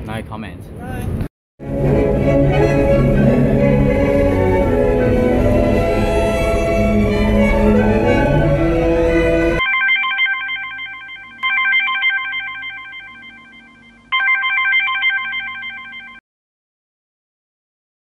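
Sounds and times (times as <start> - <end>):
orchestral string music: 1.6 - 9.6
trilling ringing tone: 9.6 - 16.2.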